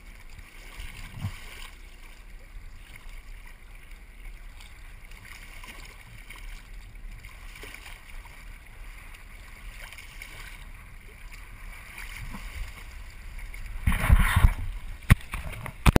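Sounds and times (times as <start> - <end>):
water rushing along hull: 0.0 - 16.0
wind on microphone: 13.6 - 16.0.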